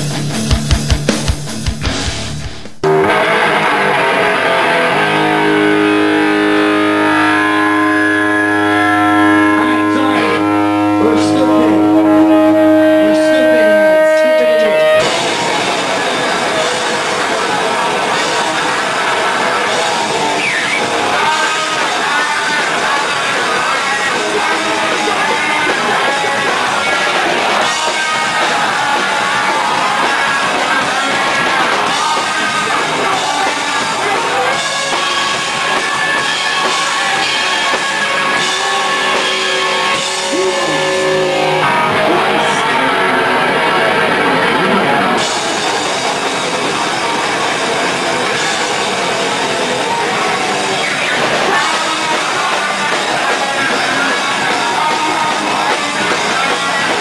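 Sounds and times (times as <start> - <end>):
distorted electric guitars: 0.0 - 57.0
drums: 0.0 - 57.0
vocalist shouting into microphone: 7.3 - 15.2, 39.2 - 45.2.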